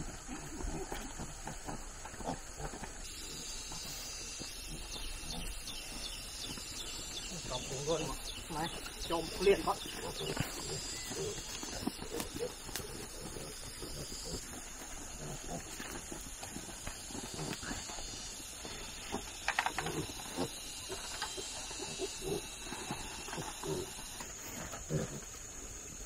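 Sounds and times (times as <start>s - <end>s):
piglets grunting: 7.2s - 17.9s, 21.8s - 25.3s.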